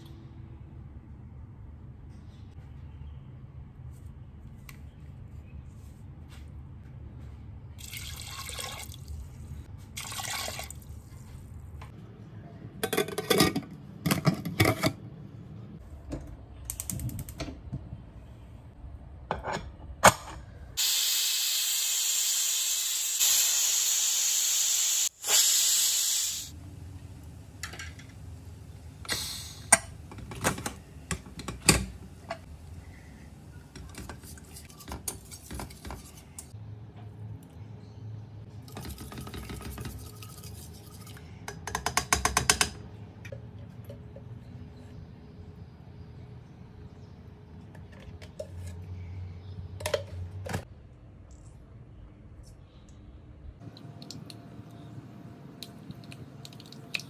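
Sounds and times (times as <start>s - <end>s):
metal lid and utensil clanks: 12.8s - 15.0s
pressure cooker steam hissing: 20.8s - 26.6s.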